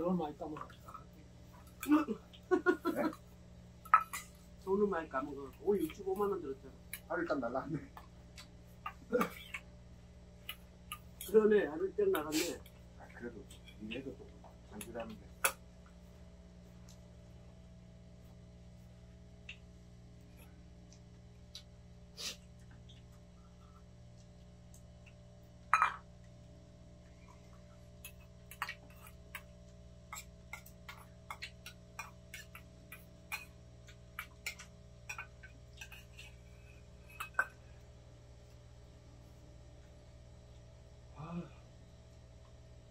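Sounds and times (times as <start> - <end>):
steady low hum: 0.0 - 42.9
utensils clinking on metal bowls: 3.8 - 4.4, 34.2 - 37.6.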